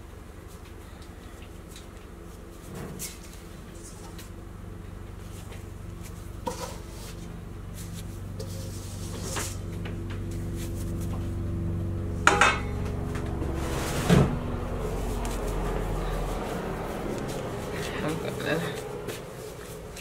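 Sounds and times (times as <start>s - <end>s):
steady low hum: 0.0s - 20.0s
kitchen knocks and clanks: 12.2s - 12.8s.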